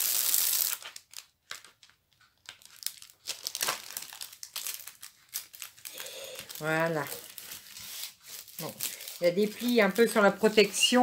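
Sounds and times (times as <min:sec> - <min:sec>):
plastic film crinkling: 0:00.0 - 0:11.0.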